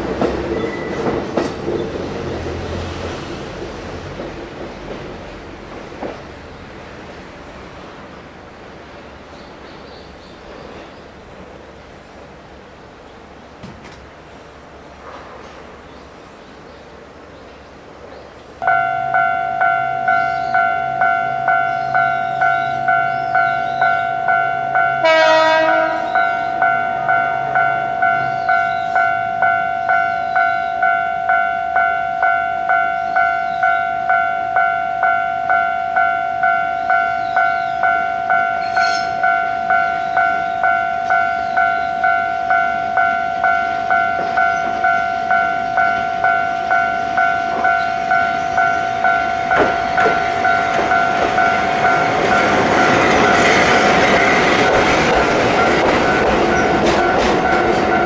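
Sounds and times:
level crossing warning bell: 18.6 - 58.0
train horn blast: 24.9 - 27.5.

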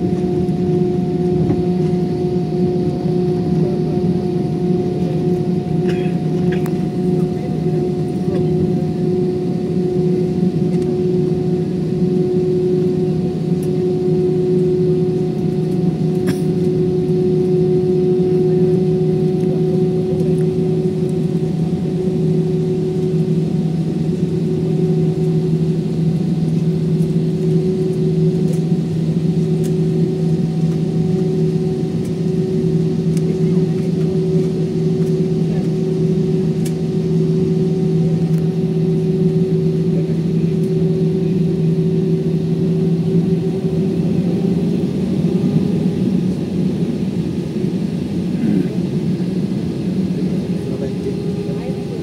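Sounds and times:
jet engines idling in cabin: 0.0 - 52.0.

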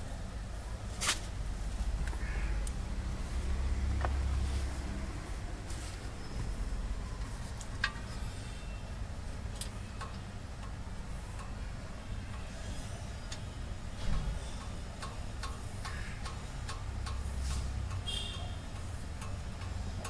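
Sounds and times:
mechanical ticking: 6.5 - 20.0.

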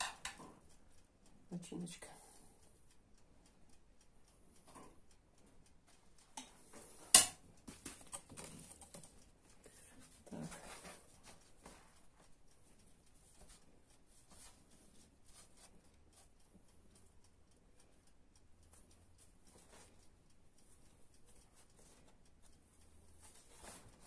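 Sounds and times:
clock ticking: 0.0 - 24.0.

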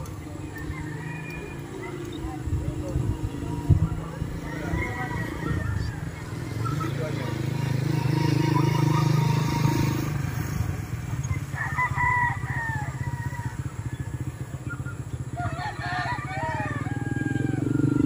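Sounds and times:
motorcycle engine running: 0.0 - 18.0
rooster crowing: 0.5 - 2.0, 4.4 - 6.2, 11.3 - 14.2, 15.3 - 18.0.

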